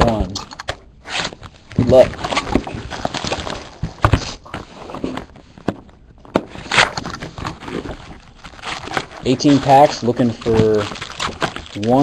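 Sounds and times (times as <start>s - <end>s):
plastic shrink wrap tearing: 6.5s - 12.0s.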